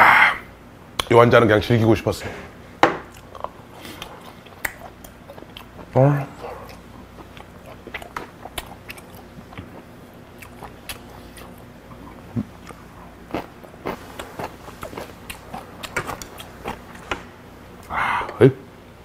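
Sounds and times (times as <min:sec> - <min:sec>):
person chewing food: 0:03.1 - 0:17.2.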